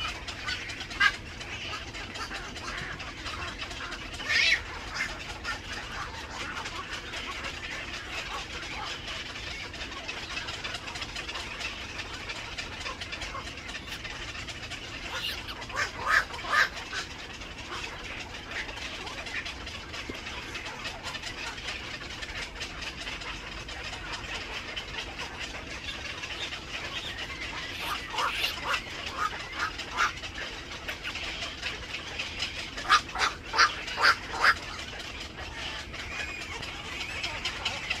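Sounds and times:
night herons calling: 0:00.0 - 0:38.0
loud single heron calls: 0:12.2 - 0:19.6, 0:26.3 - 0:30.2, 0:32.8 - 0:34.7.

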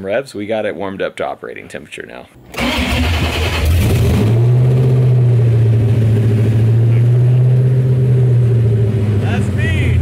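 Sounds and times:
loud car engine running: 0:03.5 - 0:10.0.

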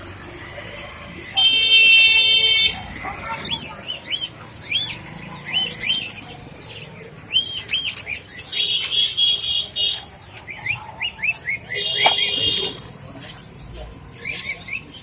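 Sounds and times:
budgerigars chirping: 0:03.3 - 0:12.5.

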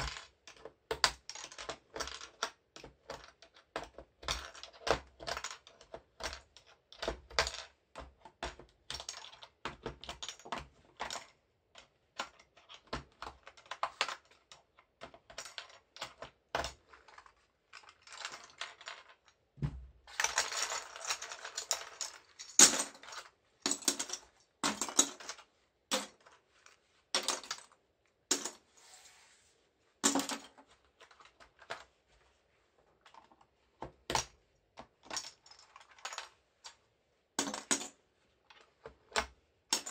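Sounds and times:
keycaps clattering on table: 0:20.1 - 0:26.3, 0:30.0 - 0:31.8, 0:37.4 - 0:37.9.

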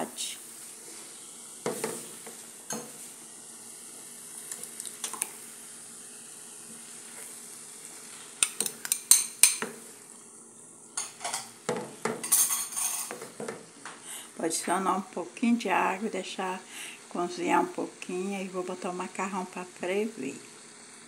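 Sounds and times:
meat sizzling in frying pan: 0:00.0 - 0:15.0, 0:15.6 - 0:21.0
spoon stirring in pan: 0:01.6 - 0:03.1, 0:06.7 - 0:09.9
glass bowl clinking: 0:12.2 - 0:13.2.

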